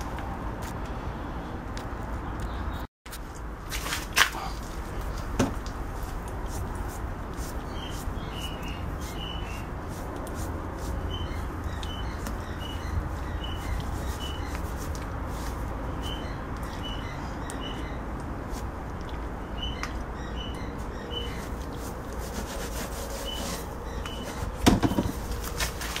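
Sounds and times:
rag rubbing on tyre: 3.1s - 16.6s, 21.1s - 26.0s.

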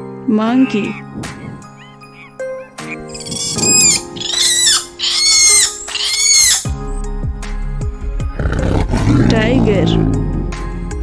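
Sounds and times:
light background music: 0.0s - 11.0s
monkey shrill calls: 1.8s - 6.8s.

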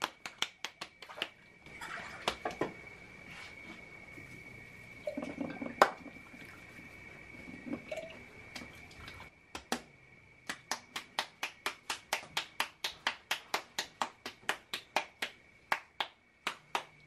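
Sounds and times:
hands patting dough: 0.0s - 1.4s, 10.5s - 17.0s.

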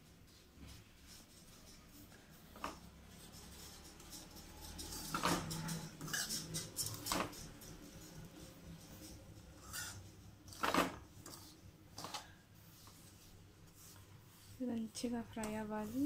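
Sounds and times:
metal spoon scraping pan: 3.2s - 10.7s.

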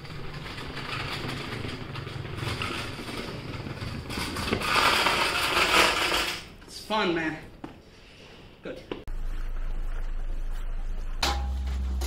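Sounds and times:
electric go-kart rolling over bricks: 0.0s - 6.7s.

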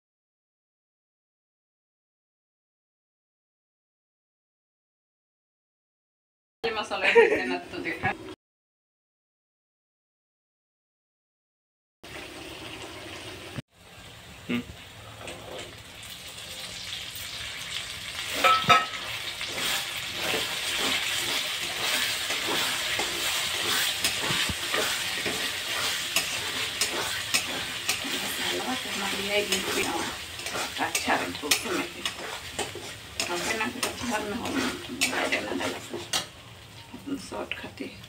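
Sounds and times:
spices sizzling in oil: 12.1s - 38.0s
spoon scraping a pan: 18.2s - 36.9s.

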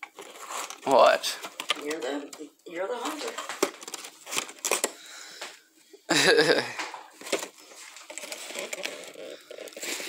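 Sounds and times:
packages being moved: 0.0s - 2.3s, 2.9s - 5.1s, 7.0s - 10.0s.

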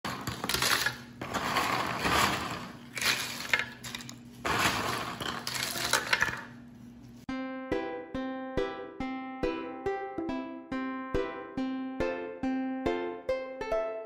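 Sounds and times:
crisp biscuits clattering: 0.0s - 6.6s.

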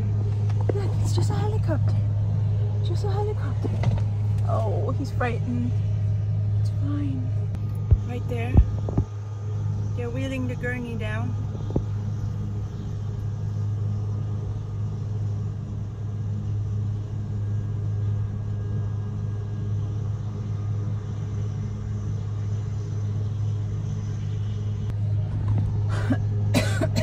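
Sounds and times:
low mechanical engine drone: 0.0s - 27.0s.

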